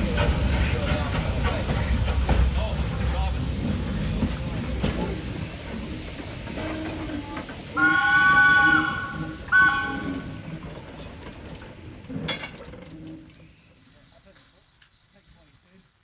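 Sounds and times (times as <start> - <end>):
steam locomotive exhaust chuffing: 0.0 - 15.6
steam whistle blasts: 7.8 - 10.4.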